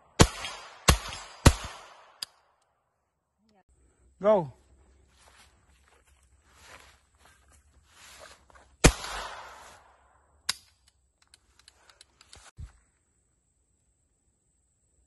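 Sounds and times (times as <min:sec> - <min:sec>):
rifle shots: 0:00.1 - 0:02.2, 0:08.8 - 0:09.9.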